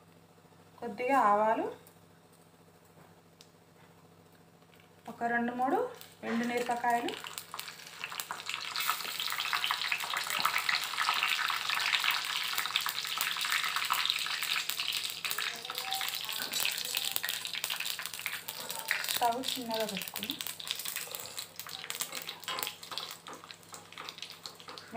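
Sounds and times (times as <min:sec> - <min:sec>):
hot oil sizzling and crackling: 0:05.9 - 0:24.9.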